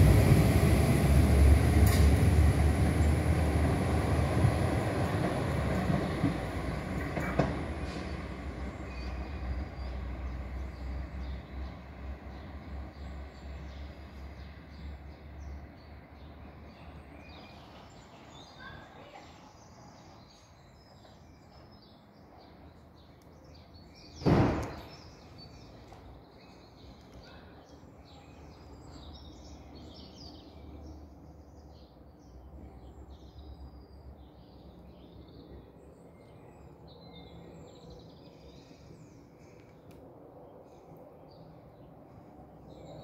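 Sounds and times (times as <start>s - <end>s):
loud thump: 24.2s - 24.9s.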